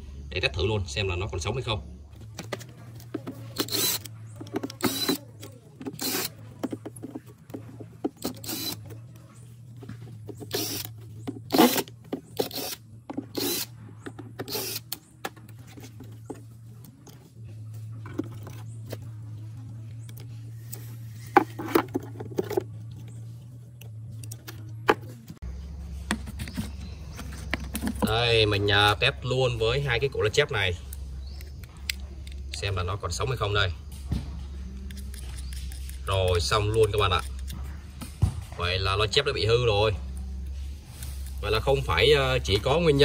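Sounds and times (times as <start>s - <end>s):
steady low hum: 0.0s - 43.0s
impact driver backing out screws: 3.2s - 6.4s, 8.1s - 8.9s, 10.4s - 15.0s.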